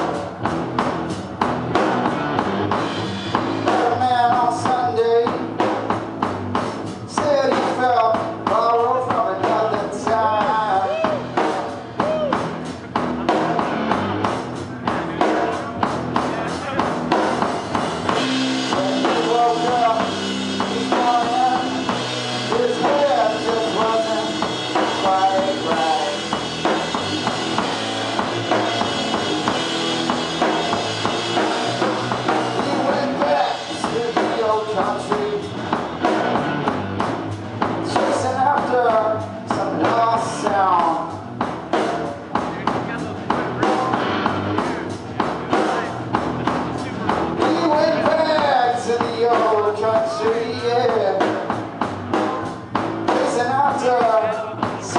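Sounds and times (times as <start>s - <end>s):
drum kit beating: 0.0s - 54.9s
overdriven electric guitar: 9.4s - 41.2s.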